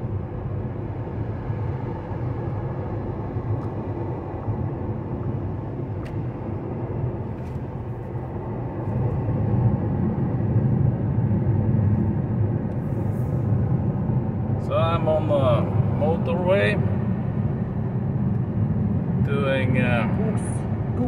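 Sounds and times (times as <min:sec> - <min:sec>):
road and tyre rumble: 0:00.0 - 0:21.0.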